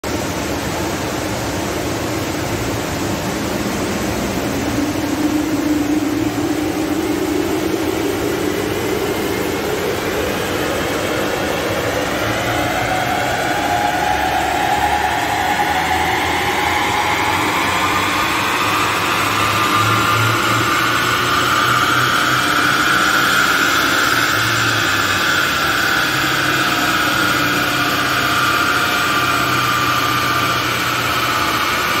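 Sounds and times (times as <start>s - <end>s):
diesel engine on dynamometer: 0.0s - 32.0s
rising whine: 0.0s - 32.0s.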